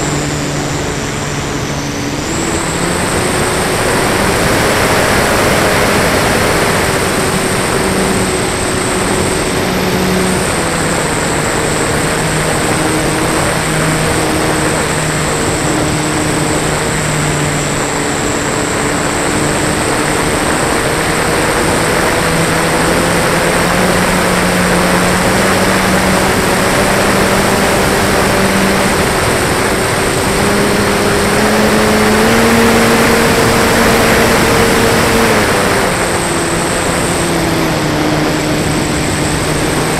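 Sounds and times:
electric motor and propeller drone: 0.0s - 39.9s
loud wind rush: 0.0s - 39.9s.

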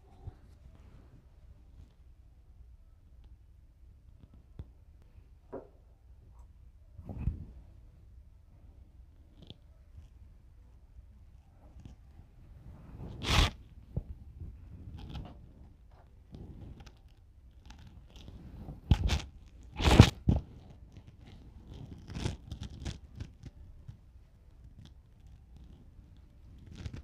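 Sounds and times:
rustling and scraping: 11.3s - 27.0s.

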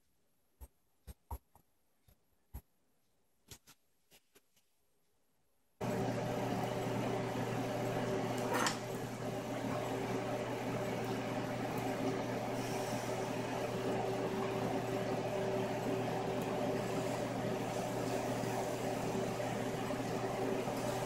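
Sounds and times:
steady mechanical hum: 5.8s - 21.0s.

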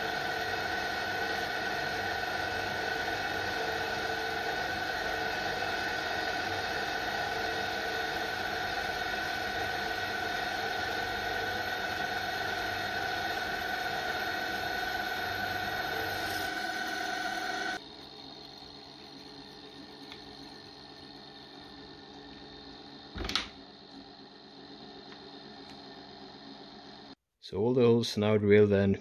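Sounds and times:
drill press drilling metal: 0.0s - 18.8s.

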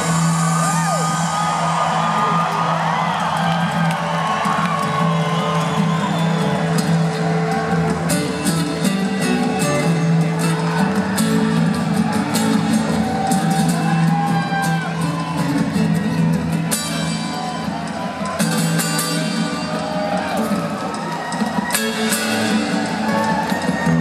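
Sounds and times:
drum and cymbal hits: 0.0s - 3.4s
electric guitar: 0.0s - 24.0s.

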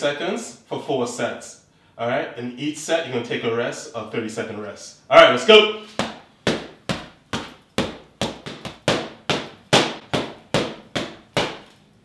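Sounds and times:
boxing gloves striking mitts: 5.9s - 11.8s.

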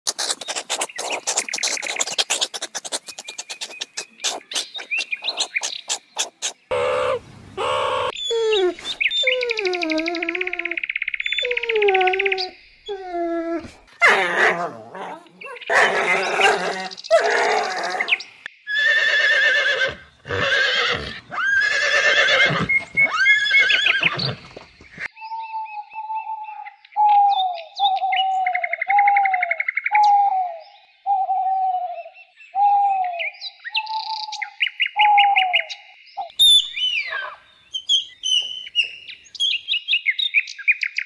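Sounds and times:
rapid animal chirps: 0.1s - 13.2s
gliding animal cries: 6.7s - 10.8s
horses whinnying: 13.6s - 24.5s.

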